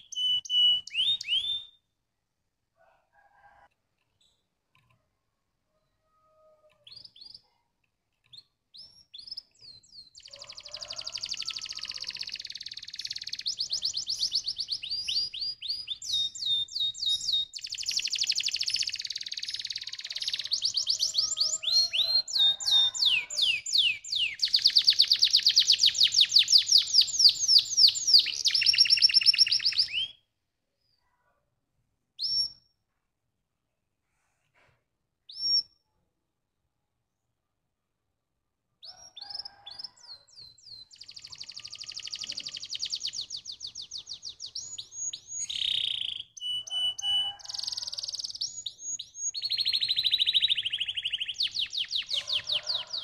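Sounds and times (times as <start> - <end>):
canary singing trills: 0.0 - 1.9, 8.2 - 30.2, 38.8 - 53.0.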